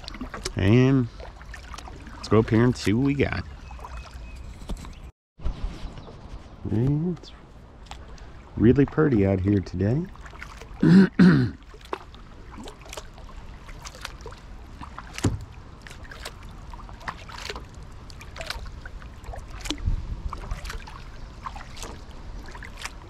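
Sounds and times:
water dripping and splashing: 0.0 - 4.4, 7.8 - 23.0
paddle knock: 14.9 - 16.4.

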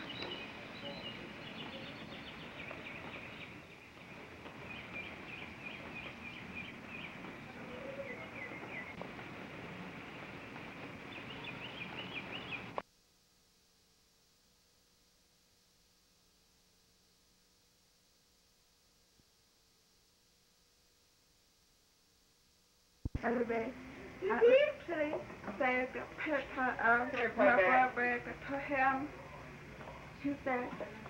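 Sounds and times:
birds chirping: 0.0 - 12.8
steady background noise: 0.0 - 12.9, 18.0 - 31.0.

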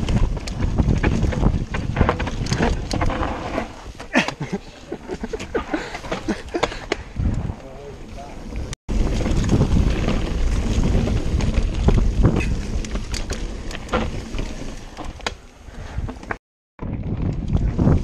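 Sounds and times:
wind buffeting microphone: 0.0 - 3.2, 5.4 - 13.3, 16.8 - 18.0
bike clicks and rattles: 0.0 - 18.0
tyres rumbling over dirt: 0.0 - 18.0.

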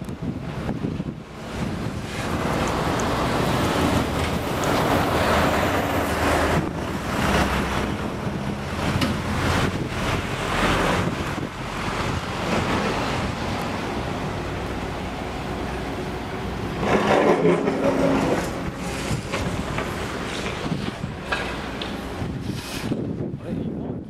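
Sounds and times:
wind buffeting microphone: 0.0 - 24.0
low engine rumble: 0.2 - 22.5.

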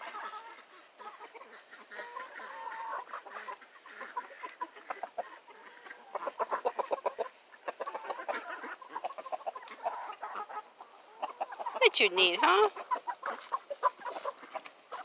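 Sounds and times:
hens clucking: 0.0 - 15.0.

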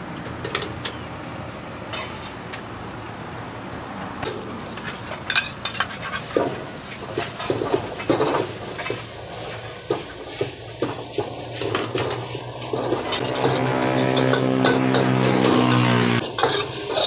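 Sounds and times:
sizzle of frying: 4.6 - 17.0
metal spatula scraping a wok: 4.8 - 6.4, 8.7 - 17.0.

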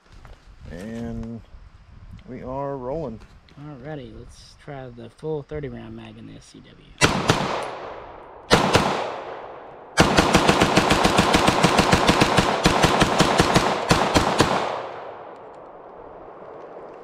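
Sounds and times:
pistol shots: 7.0 - 15.7.

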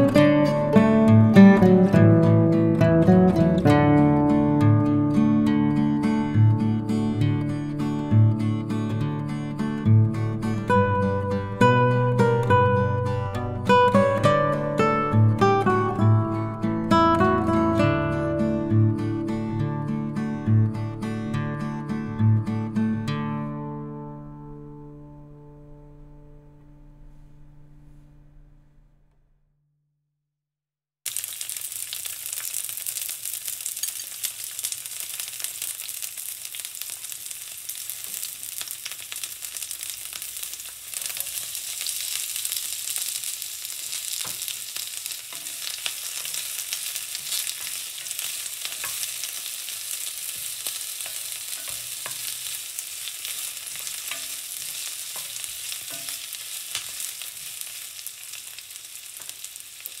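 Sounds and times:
onion sizzling in hot oil: 31.0 - 60.0.

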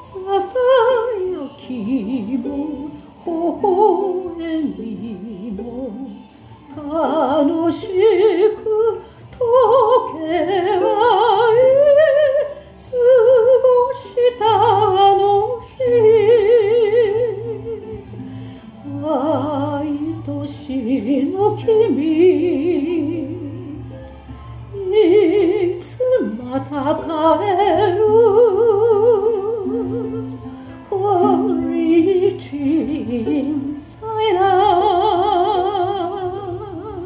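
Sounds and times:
strummed ukulele: 0.0 - 37.0
woman singing a slow ballad: 6.8 - 18.1.

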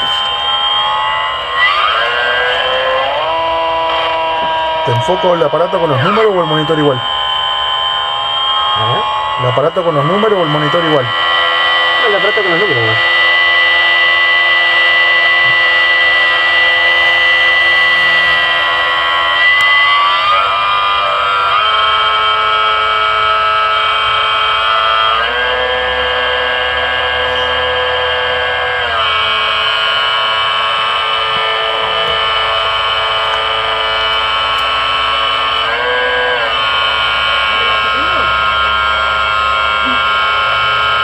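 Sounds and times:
mechanical hum: 0.0 - 41.0.

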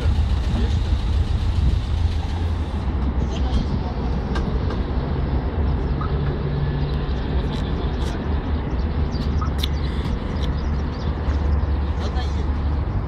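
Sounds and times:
low hum: 0.0 - 3.0
van engine low rumble: 0.0 - 13.0.

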